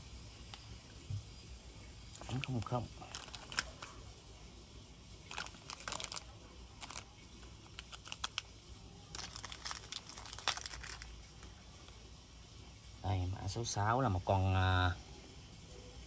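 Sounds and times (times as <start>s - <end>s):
rustling: 2.1s - 4.2s, 5.2s - 8.5s, 9.1s - 12.0s.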